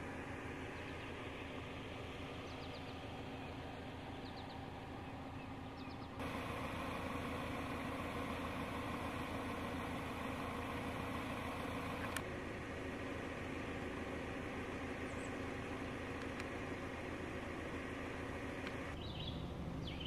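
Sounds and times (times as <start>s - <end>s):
vehicle engine idling: 0.0s - 20.0s
faint bird chirps: 0.5s - 6.2s, 15.0s - 15.4s, 19.0s - 20.0s.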